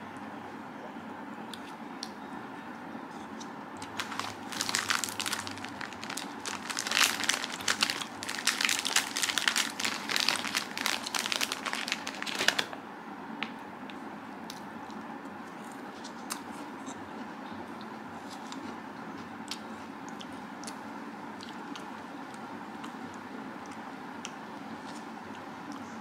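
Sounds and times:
steady low hum: 0.0 - 26.0
crinkling and crumpling: 3.8 - 12.8.

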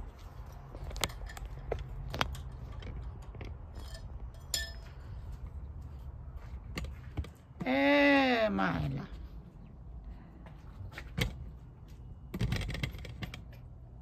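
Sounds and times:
metallic tool clinks: 3.8 - 5.0.

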